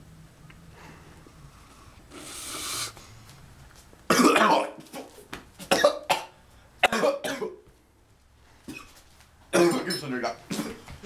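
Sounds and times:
boy coughing hard: 4.1 - 5.1, 5.7 - 7.6, 9.6 - 9.9, 10.5 - 10.8.

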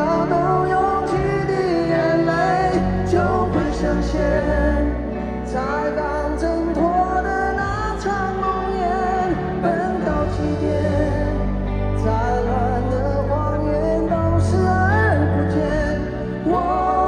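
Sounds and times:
live pop band playing: 0.0 - 17.0
person singing: 0.0 - 17.0
steady bass: 0.0 - 17.0.

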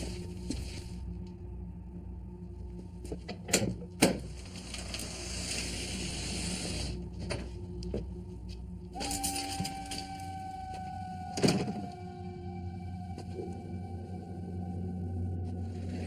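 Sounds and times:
low steady hum: 0.0 - 16.0
hiss: 4.7 - 7.0.

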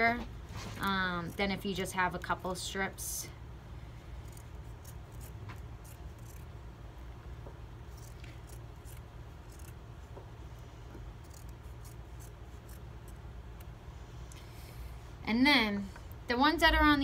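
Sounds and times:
scissors snipping fabric: 4.2 - 6.5, 7.9 - 9.8, 11.0 - 13.7.

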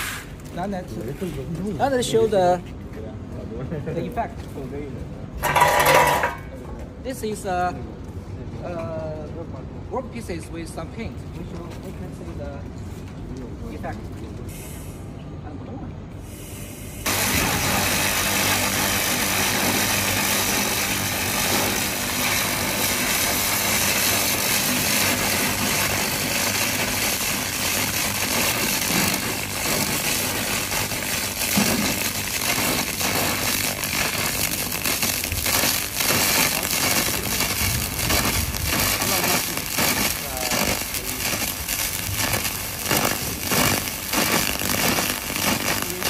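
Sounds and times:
laser cleaner hissing buzz: 16.5 - 37.6.

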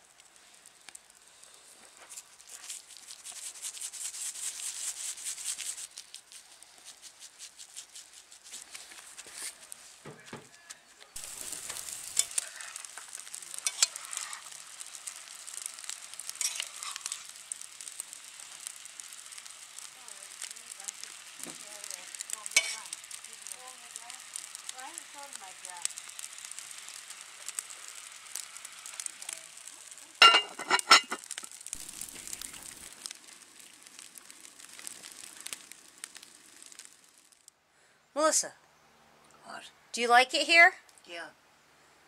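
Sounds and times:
food sizzling in a pan: 0.0 - 37.5
sharp pops: 8.5 - 37.5.

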